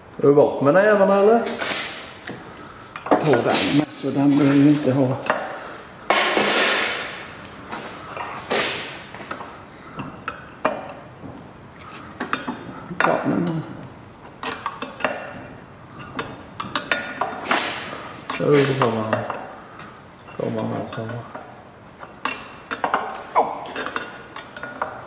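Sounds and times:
metal tools clinking: 0:03.1 - 0:04.9.

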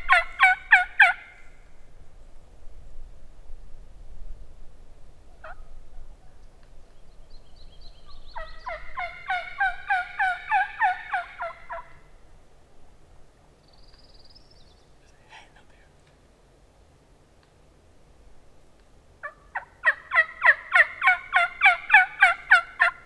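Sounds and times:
wild turkey calling: 0:00.0 - 0:01.5, 0:05.4 - 0:06.4, 0:07.8 - 0:12.1, 0:19.2 - 0:23.0.

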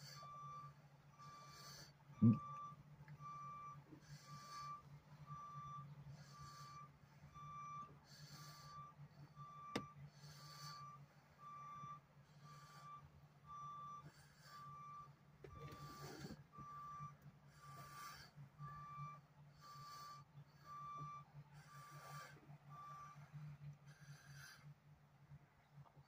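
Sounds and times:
backup alarm beeping: 0:00.0 - 0:24.5
truck engine idling: 0:00.0 - 0:26.0.

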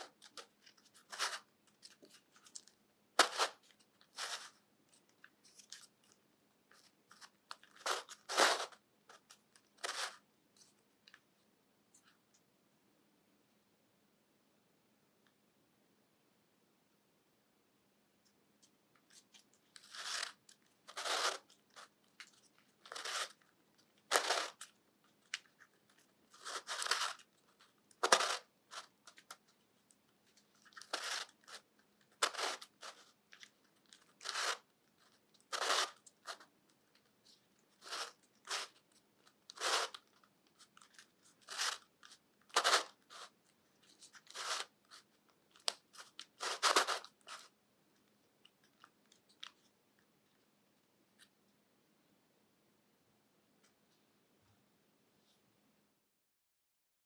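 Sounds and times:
plastic puzzle pieces rasping: 0:00.0 - 0:10.8, 0:19.0 - 0:47.5.

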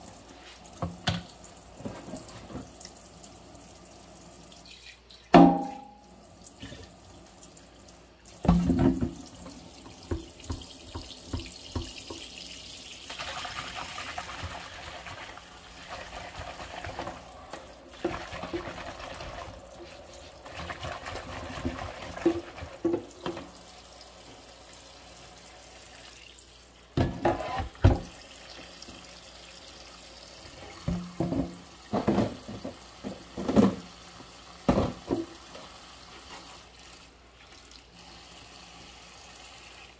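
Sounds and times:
dishes clinking against sink: 0:05.3 - 0:06.9, 0:30.6 - 0:33.9.

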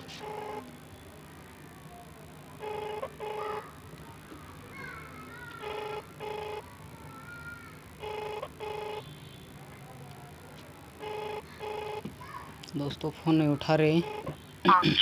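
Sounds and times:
phone ringback tone: 0:00.1 - 0:00.7, 0:02.6 - 0:03.6, 0:05.6 - 0:06.7, 0:08.0 - 0:09.1, 0:11.0 - 0:12.1, 0:13.9 - 0:14.9.

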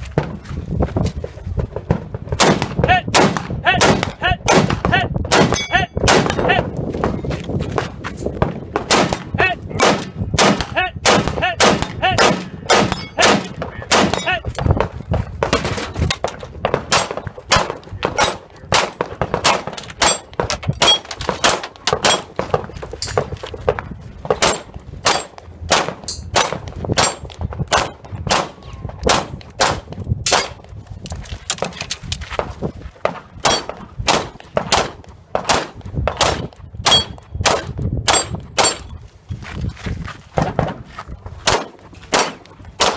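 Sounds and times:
pistol shots: 0:02.3 - 0:06.5, 0:08.7 - 0:14.3, 0:24.4 - 0:30.6, 0:33.4 - 0:38.8, 0:41.4 - 0:42.9
rifle gunfire: 0:02.4 - 0:06.4, 0:08.8 - 0:14.2, 0:41.4 - 0:42.9
steel plate targets ringing: 0:05.5 - 0:06.0, 0:12.5 - 0:14.3, 0:36.3 - 0:39.0.

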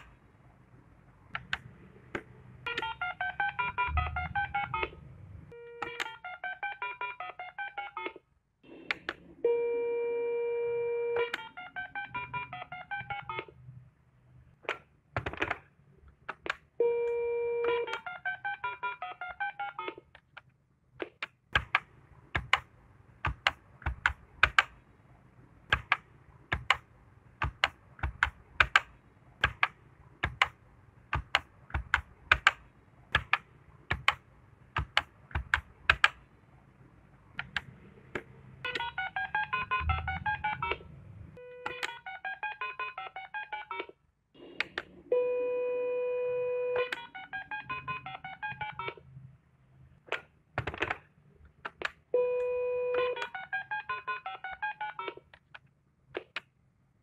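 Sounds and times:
keypad dialling beeps: 0:02.7 - 0:04.9, 0:11.1 - 0:13.5, 0:38.7 - 0:40.8, 0:41.4 - 0:43.9, 0:44.7 - 0:49.0, 0:52.2 - 0:55.2
keypad button clicks: 0:05.8 - 0:06.2, 0:21.0 - 0:24.8, 0:25.7 - 0:26.8, 0:27.4 - 0:34.2, 0:34.8 - 0:36.2, 0:37.4 - 0:40.8, 0:41.6 - 0:42.2, 0:46.8 - 0:49.0
held beep tones: 0:38.7 - 0:40.8.

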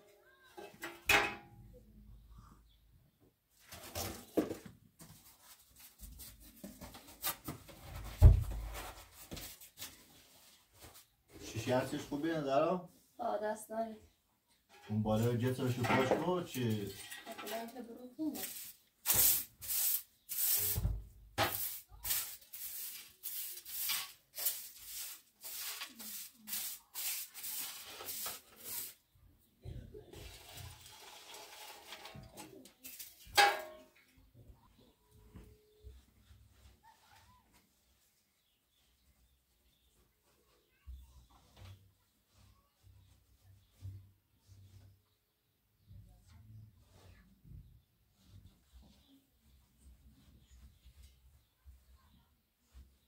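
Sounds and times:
rough scraping on hard surface: 0:30.2 - 0:33.2.

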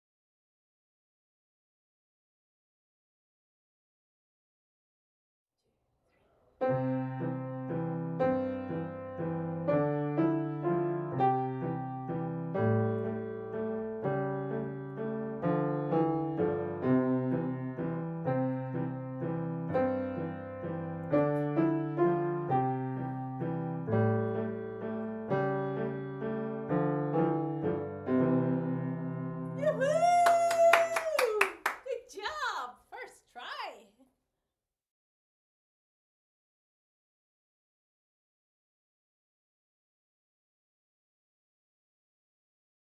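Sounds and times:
acoustic piano melody: 0:06.6 - 0:29.8
digital piano accompaniment: 0:06.7 - 0:29.7.

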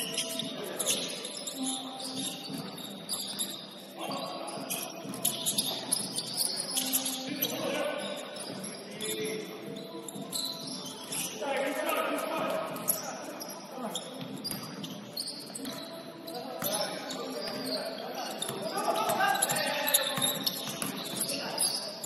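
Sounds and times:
shoes squeaking on gym court: 0:00.0 - 0:22.0
basketball bouncing: 0:18.4 - 0:21.4.

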